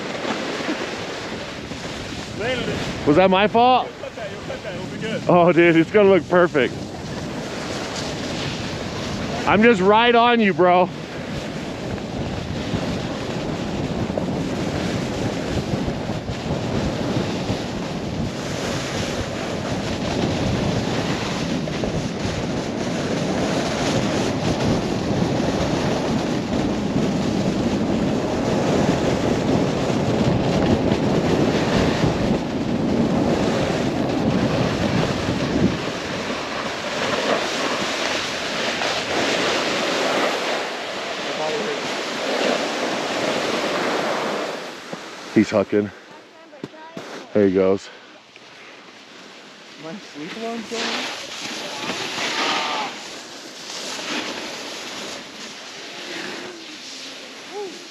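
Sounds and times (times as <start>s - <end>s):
wind rushing over microphone: 0.0s - 46.0s
snowboard edges scraping snow: 0.0s - 57.9s.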